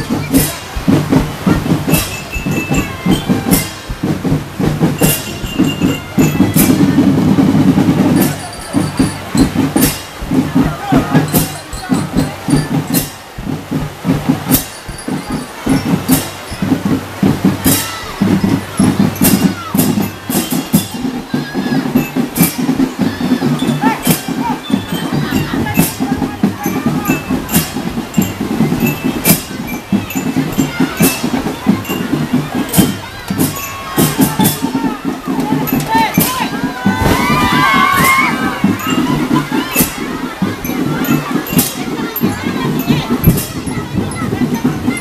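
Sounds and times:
drum beat: 0.0s - 45.0s.

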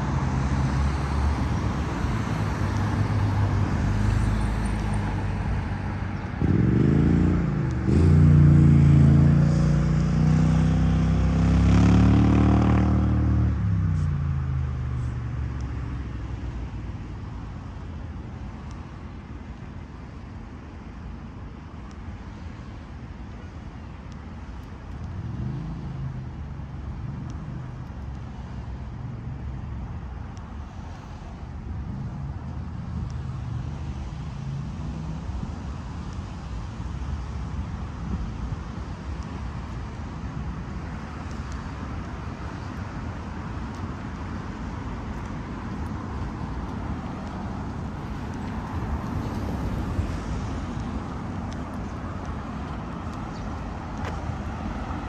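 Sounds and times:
vehicle engine accelerating past: 0.0s - 15.3s
faint vehicle passing: 0.0s - 16.7s
road traffic hum: 0.0s - 55.0s.

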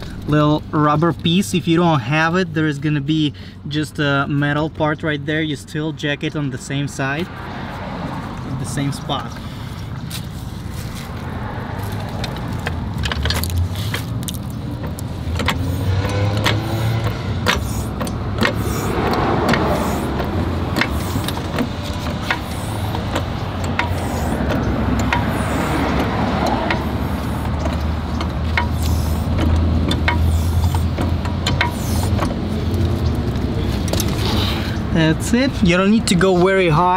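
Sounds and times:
car jack clicking: 12.2s - 34.9s.

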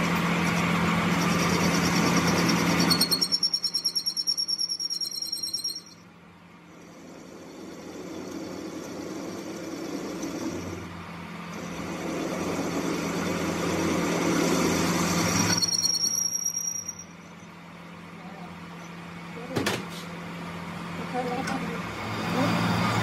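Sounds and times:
lathe motor hum: 0.0s - 4.2s, 6.6s - 16.1s.

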